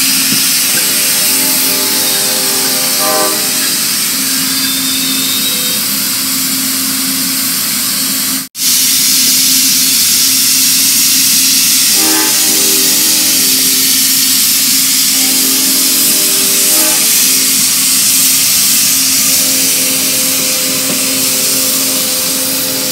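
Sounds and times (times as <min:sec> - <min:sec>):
chord of tones: 0:00.0 - 0:05.9
train wheels rushing on rail: 0:00.0 - 0:22.9.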